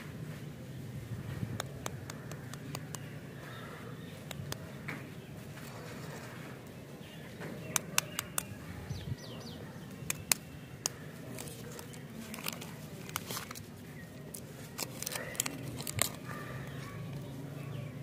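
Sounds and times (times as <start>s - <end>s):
foil wrapper crinkling: 11.3s - 16.4s.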